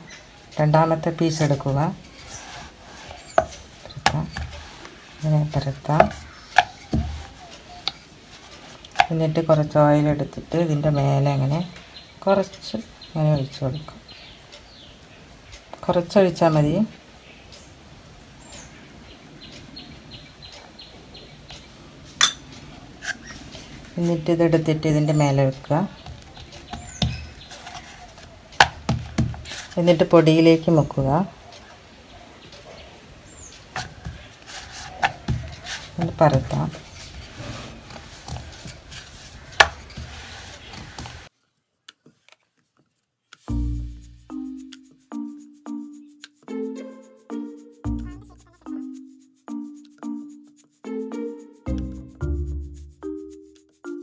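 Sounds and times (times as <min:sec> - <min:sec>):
faint bird chirping: 0:00.0 - 0:41.3
rolling pin rolling dough: 0:00.8 - 0:10.2, 0:23.6 - 0:31.6, 0:33.5 - 0:41.3
spoon clinking against glass bowl: 0:22.2 - 0:22.5
background music: 0:43.5 - 0:54.0.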